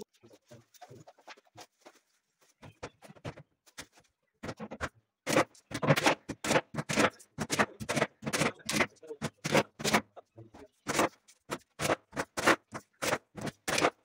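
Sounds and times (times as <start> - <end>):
hammer striking nails into wood: 4.4 - 10.0, 10.8 - 14.0.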